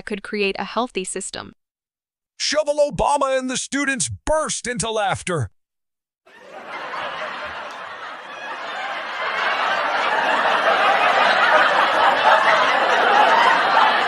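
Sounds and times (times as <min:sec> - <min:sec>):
crowd laughing: 0:06.3 - 0:14.0.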